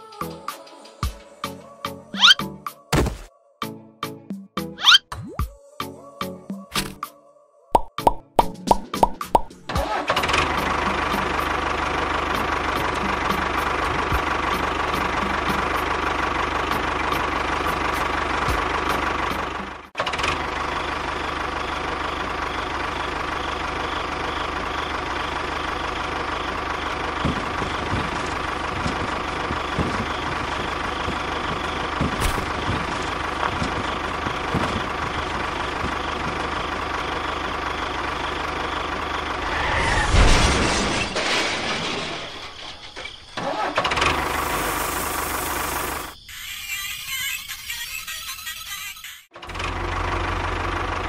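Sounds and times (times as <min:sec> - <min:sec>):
tractor engine idling: 0:09.3 - 0:39.8, 0:42.4 - 0:46.2, 0:49.4 - 0:51.0.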